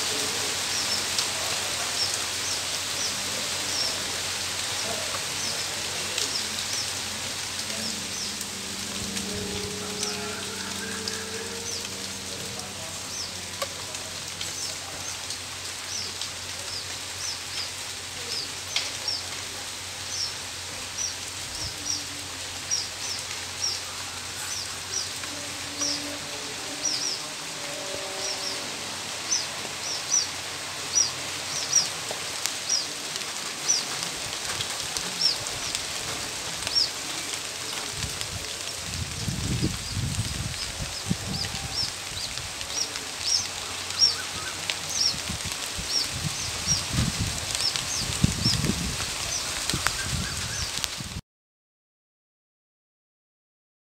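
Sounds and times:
rain hiss: 0.0s - 51.2s.

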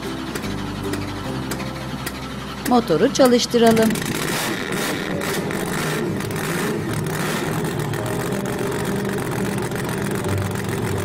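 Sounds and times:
truck engine low drone: 0.0s - 11.0s.

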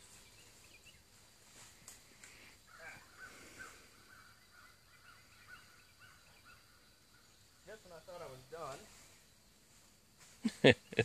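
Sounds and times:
faint clicks: 1.8s - 2.4s.

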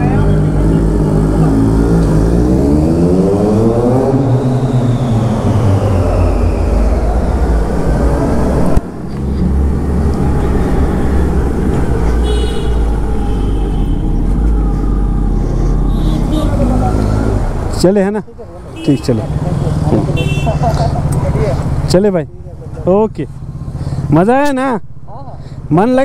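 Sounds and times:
motorcycle engine revving: 0.0s - 17.8s.

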